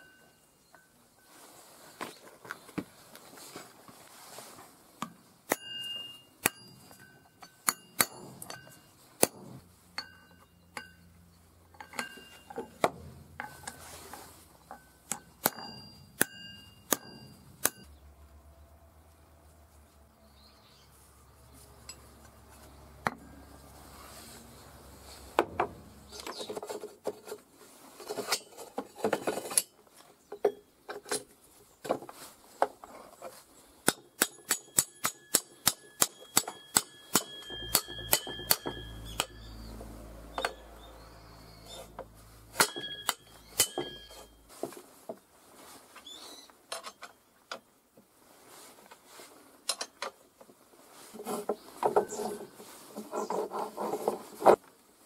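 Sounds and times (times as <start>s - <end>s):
hammer striking steel: 5.5s - 11.0s, 15.1s - 17.9s, 33.8s - 39.5s, 42.5s - 44.4s.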